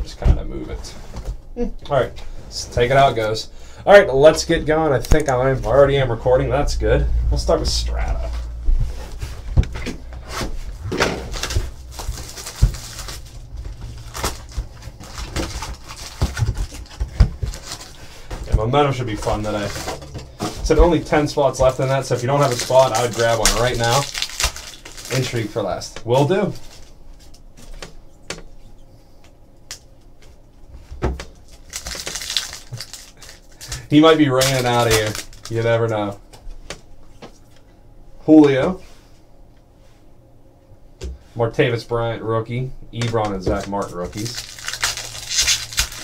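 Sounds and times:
plastic wrap crinkling: 10.4 - 27.9, 31.2 - 35.9, 43.1 - 46.0.

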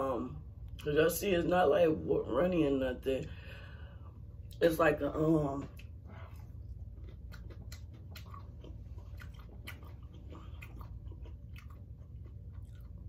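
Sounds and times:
person chewing fried shrimp: 5.7 - 13.0.

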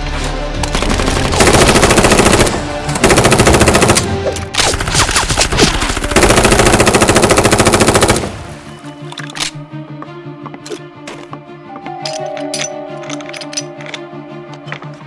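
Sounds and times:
background music: 0.0 - 15.0
automatic gunfire bursts: 0.8 - 8.4.

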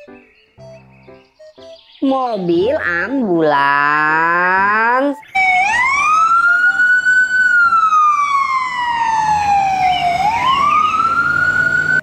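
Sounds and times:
ambulance siren wailing: 5.3 - 12.0.

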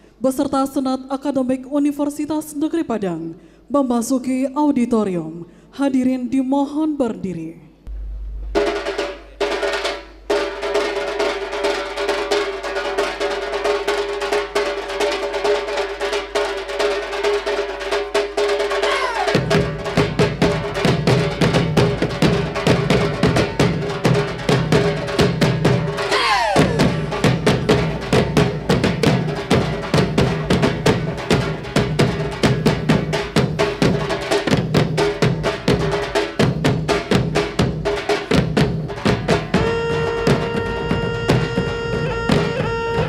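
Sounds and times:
drum ensemble playing fast rhythm: 7.9 - 43.0
steady held note: 39.5 - 43.0.

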